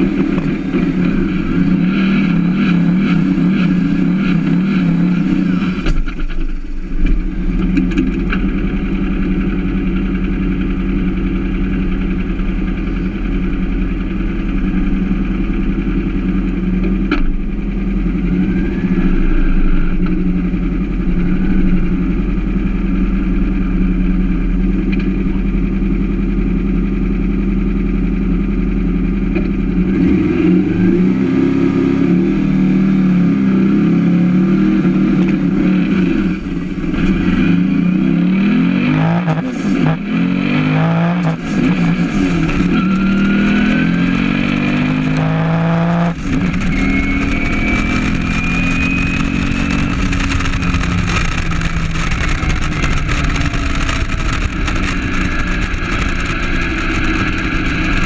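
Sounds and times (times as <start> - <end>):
car engine at full throttle: 0.0 - 58.0
high turbo whine: 0.0 - 58.0.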